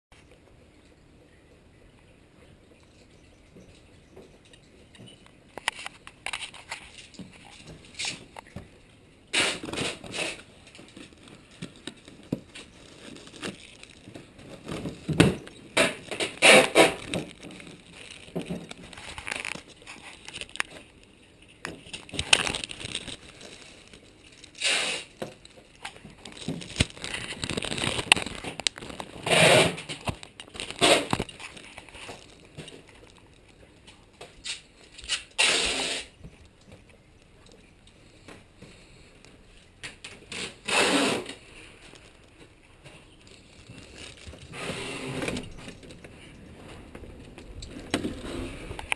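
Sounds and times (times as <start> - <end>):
plastic bag crinkling: 9.4 - 35.4, 38.7 - 48.9.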